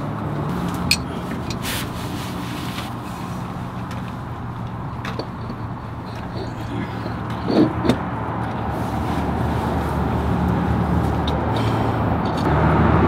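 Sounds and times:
vehicle engine humming: 0:00.0 - 0:13.0
wrench scraping: 0:00.8 - 0:02.0, 0:03.0 - 0:08.8.

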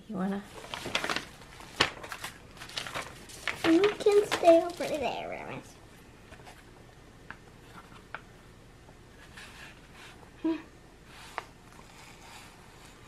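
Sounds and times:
paper envelope rustling: 0:00.5 - 0:05.6.

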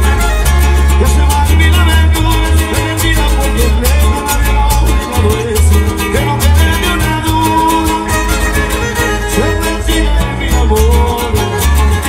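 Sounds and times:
upbeat regional band music: 0:00.0 - 0:12.0.

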